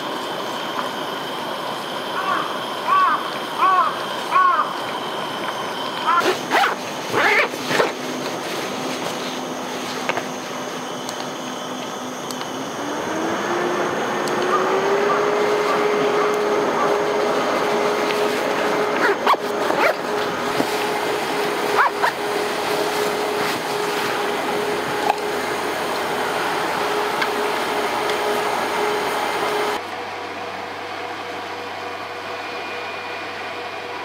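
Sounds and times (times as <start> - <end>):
small cooling fans whirring: 0.0 - 34.0.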